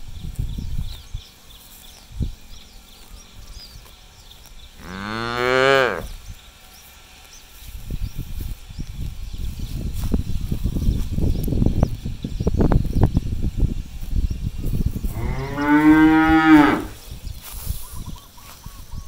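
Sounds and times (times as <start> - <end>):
grass being torn and chewed: 0.2 - 4.8, 6.1 - 15.2, 17.0 - 18.9
cow mooing: 4.8 - 6.1, 15.2 - 17.0.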